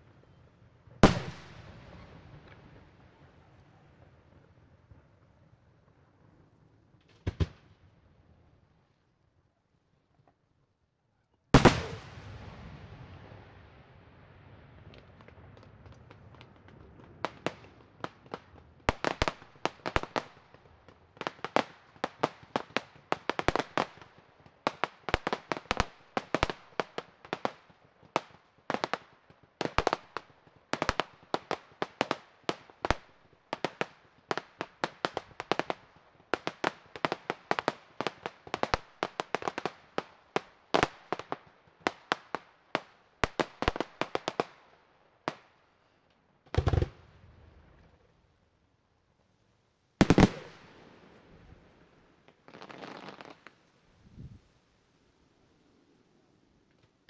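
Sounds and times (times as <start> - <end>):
fireworks bursting: 1.0 - 4.1, 11.5 - 13.4, 14.7 - 44.6, 46.5 - 47.9, 50.0 - 51.5, 52.3 - 53.6.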